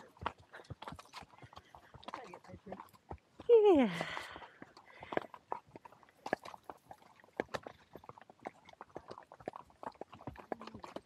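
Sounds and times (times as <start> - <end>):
horse hooves clip-clopping: 0.0 - 11.0.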